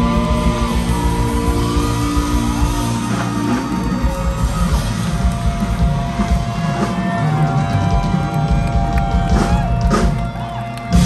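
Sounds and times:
rock band playing loudly: 0.0 - 11.0.

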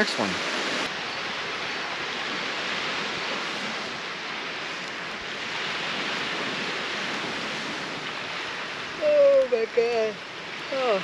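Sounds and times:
waves washing on shore: 0.0 - 11.0.

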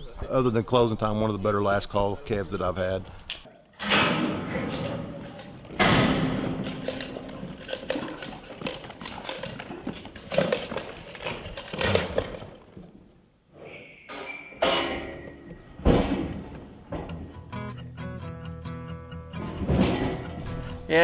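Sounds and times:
hooves thudding on dirt: 4.4 - 13.0.

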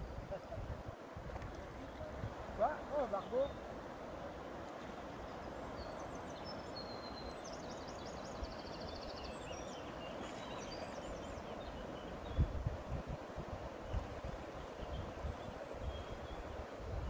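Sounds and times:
river water flowing: 0.0 - 17.0
small birds chirping: 4.3 - 13.0.

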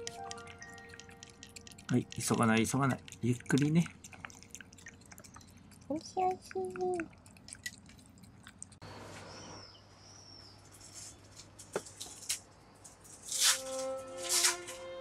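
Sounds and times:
cat licking and eating food: 0.0 - 8.9.

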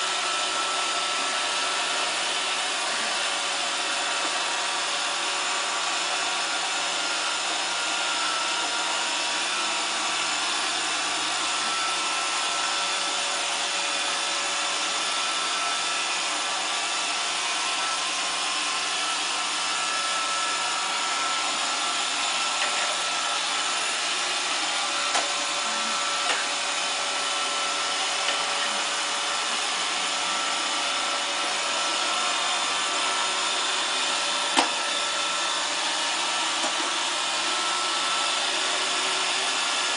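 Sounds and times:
robot vacuum whirring: 0.0 - 39.9.

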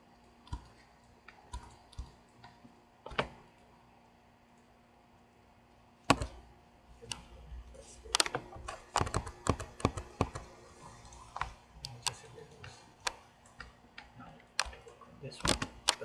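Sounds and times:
mouse and keyboard clicks: 0.5 - 3.4, 6.1 - 6.4, 8.1 - 10.5, 13.0 - 16.0.

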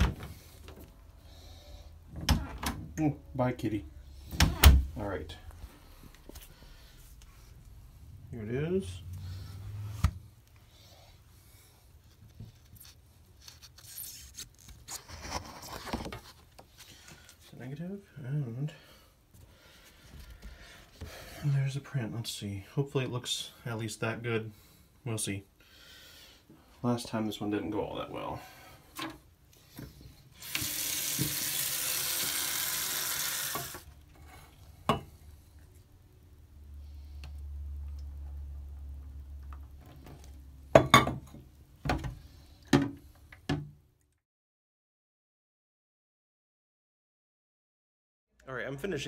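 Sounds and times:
paper rustling: 12.0 - 17.5
tap water running into tray: 30.4 - 33.9.

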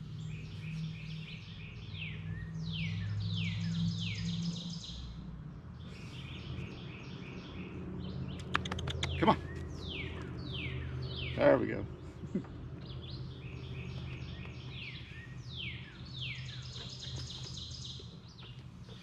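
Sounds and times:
songbirds singing: 0.0 - 19.0
sharp clicks: 8.4 - 9.3.

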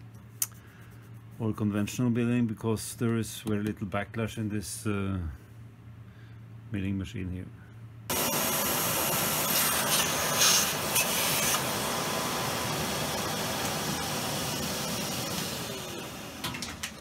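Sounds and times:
vacuum cleaner hissing: 8.1 - 16.9.

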